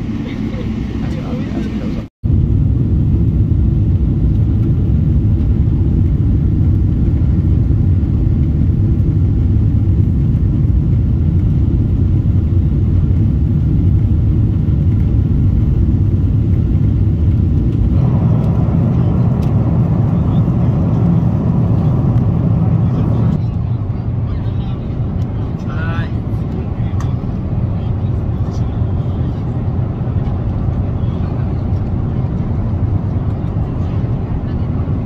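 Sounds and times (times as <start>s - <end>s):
jet engine rumble inside cabin: 0.0s - 35.0s.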